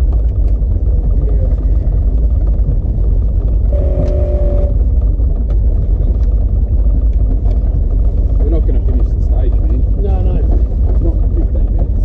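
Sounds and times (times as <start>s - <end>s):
truck engine low rumble: 0.0s - 12.0s
steady tones: 3.0s - 5.8s.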